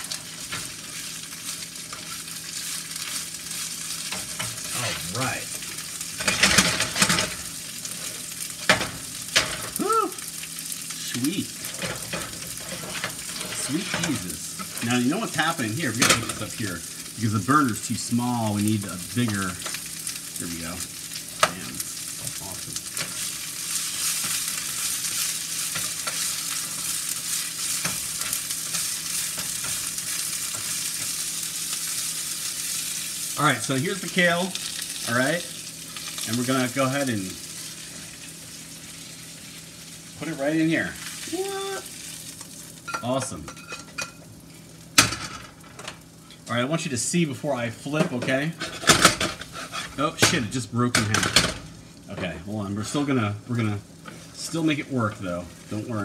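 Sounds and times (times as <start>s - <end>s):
eggs sizzling in a frying pan: 0.0s - 56.0s
utensil scraping in pan: 11.6s - 16.7s, 22.8s - 33.2s, 48.5s - 50.2s.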